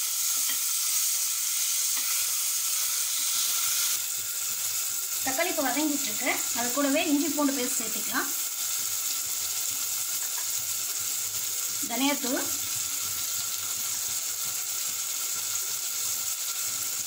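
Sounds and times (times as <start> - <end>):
onions and tomatoes frying in oil: 0.0 - 17.0.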